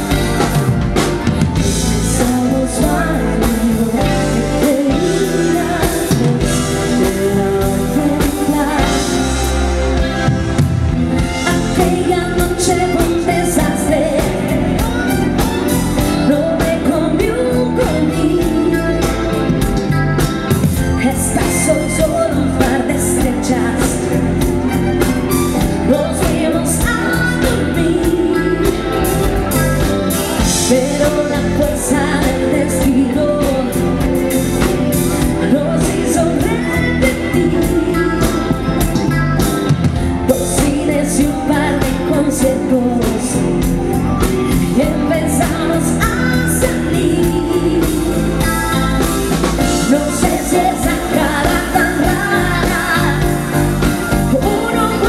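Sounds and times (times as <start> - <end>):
live pop-rock band: 0.0 - 55.0
woman singing lead: 0.0 - 55.0.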